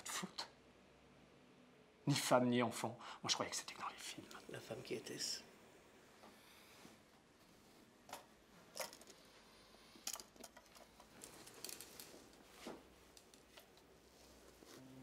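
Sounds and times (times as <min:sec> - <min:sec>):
faint clicks and rustles: 0:06.2 - 0:15.0.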